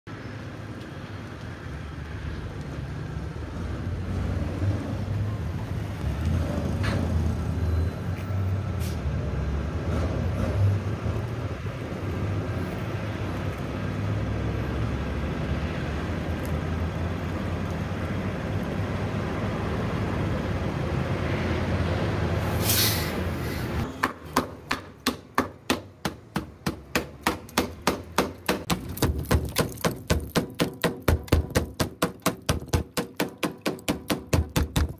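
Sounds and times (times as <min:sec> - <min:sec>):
bus engine rumbling: 0:05.6 - 0:29.3
air hiss: 0:22.5 - 0:23.8
hammer knocking on metal panel: 0:24.0 - 0:34.9.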